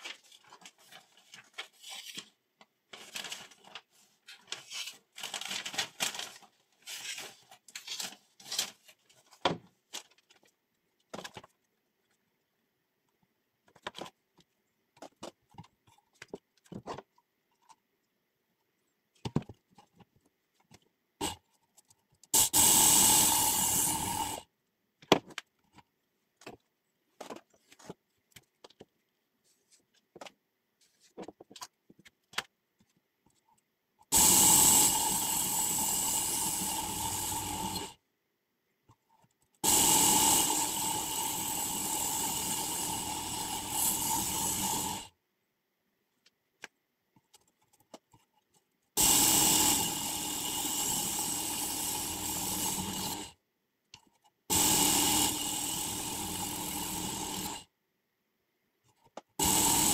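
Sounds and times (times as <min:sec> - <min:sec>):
paper rustling and scraping: 0:00.0 - 0:10.6, 0:27.2 - 0:28.0, 0:28.6 - 0:33.0.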